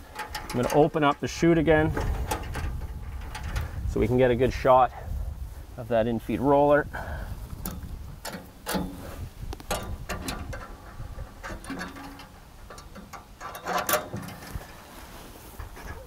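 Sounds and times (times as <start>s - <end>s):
metal latches clicking and clunking: 0.0s - 3.7s, 7.6s - 14.8s.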